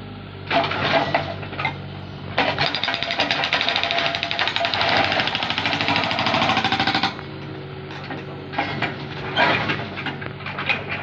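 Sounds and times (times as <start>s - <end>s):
diesel engine running: 0.0s - 11.0s
hydraulic breaker hammering ground: 2.4s - 7.2s.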